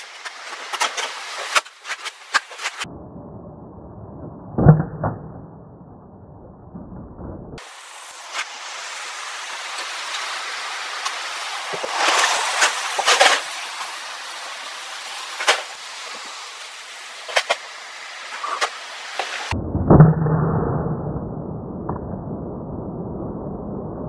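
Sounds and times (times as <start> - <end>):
steady hiss: 0.0 - 2.9, 7.6 - 19.6.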